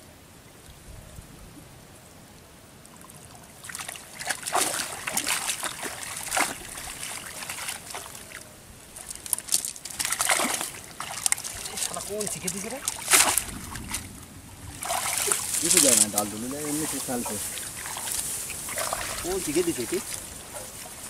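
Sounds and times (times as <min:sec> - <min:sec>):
water splashing off a net: 0:03.6 - 0:08.4, 0:09.0 - 0:14.1, 0:14.7 - 0:21.0.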